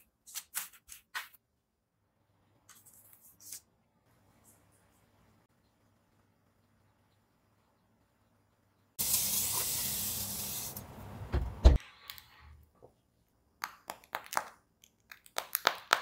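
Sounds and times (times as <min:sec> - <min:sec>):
loud spraying hiss: 0:09.0 - 0:10.8.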